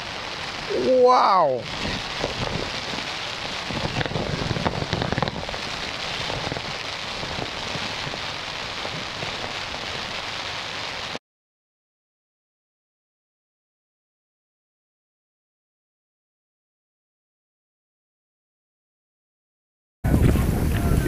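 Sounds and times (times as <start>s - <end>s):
heavy rain pouring: 0.0s - 11.2s, 20.1s - 21.0s.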